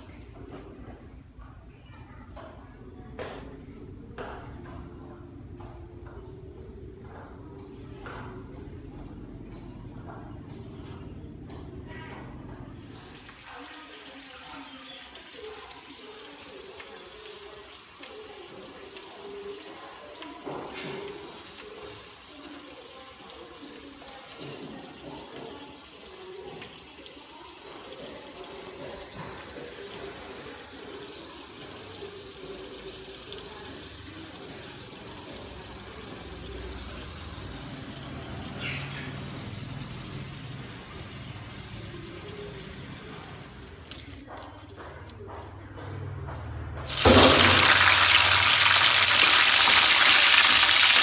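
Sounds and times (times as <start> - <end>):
water running from a tap: 12.7 - 44.0, 46.9 - 51.0.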